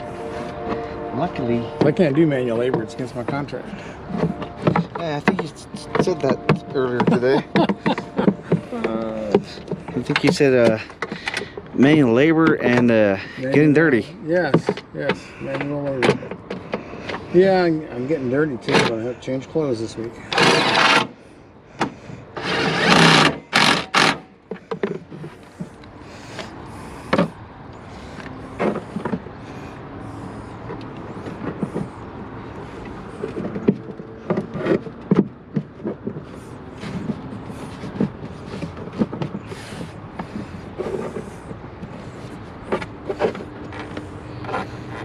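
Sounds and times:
steady background hum: 0:00.0 - 0:45.0
tools clicking and knocking: 0:04.1 - 0:12.9.

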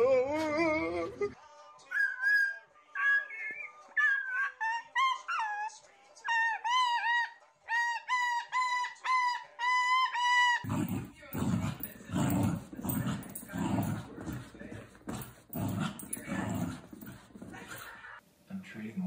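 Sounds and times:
dog growling: 0:10.6 - 0:18.0.

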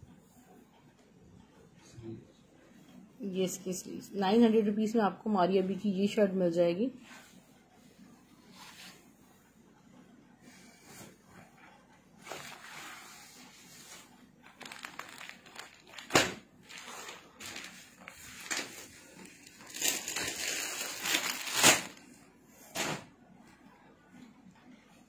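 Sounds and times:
plastic packaging rustling: 0:13.9 - 0:22.1
sharp plastic crackles: 0:14.4 - 0:22.0.

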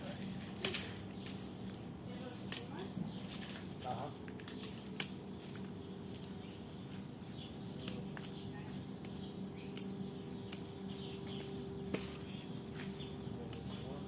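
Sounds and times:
steady low hum: 0:00.0 - 0:14.0
scissors snipping stems: 0:02.4 - 0:12.4, 0:13.4 - 0:14.0.

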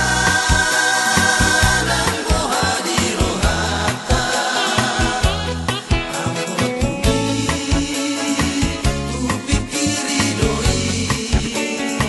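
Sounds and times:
background music with beat and bass: 0:00.0 - 0:12.0.

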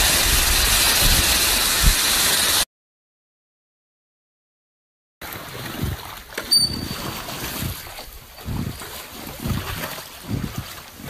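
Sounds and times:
river water splashing: 0:05.2 - 0:11.0.

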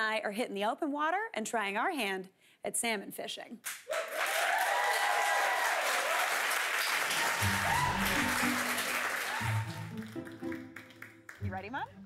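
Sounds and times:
audience applauding: 0:03.8 - 0:11.5
background music with bass line: 0:07.4 - 0:12.0.

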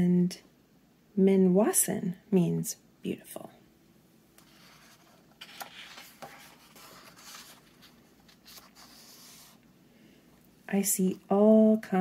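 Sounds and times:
book page turning: 0:04.4 - 0:09.6.

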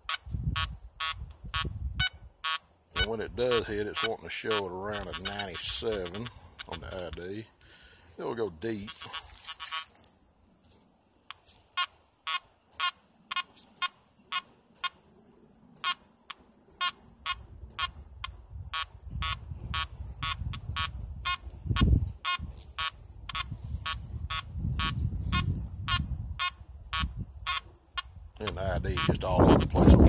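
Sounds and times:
metal detector beeps: 0:00.0 - 0:07.2, 0:08.8 - 0:09.9, 0:11.3 - 0:15.1, 0:15.8 - 0:29.7
low microphone rumble: 0:17.2 - 0:30.0.

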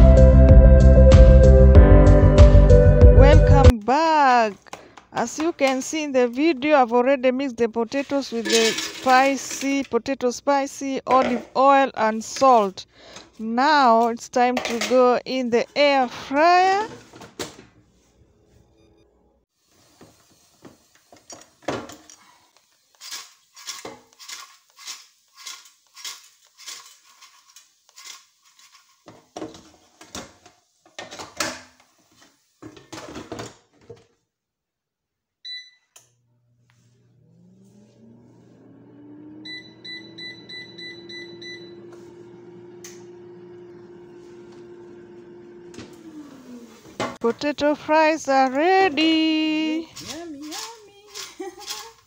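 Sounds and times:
short beeps: 0:35.5 - 0:35.9
air fryer fan whine and hum: 0:36.2 - 0:46.9.

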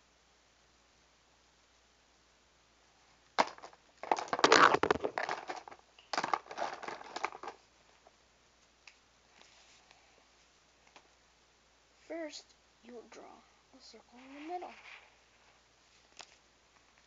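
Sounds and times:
rustling handling noise on microphone: 0:03.1 - 0:11.2, 0:13.8 - 0:17.0.

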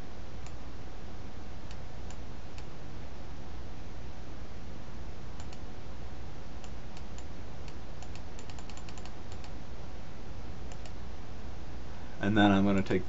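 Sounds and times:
low hum and hiss: 0:00.0 - 0:13.0
keyboard keys clicking: 0:08.0 - 0:09.5.

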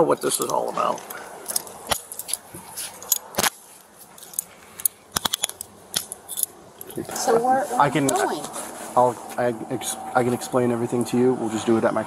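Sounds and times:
handcuffs clicking and clinking: 0:00.3 - 0:07.1.

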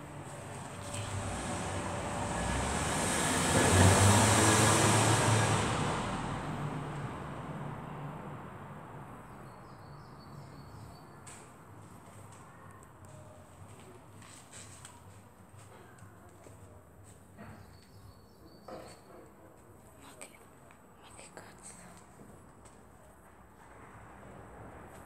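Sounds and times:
vehicle passing by: 0:00.0 - 0:09.4.

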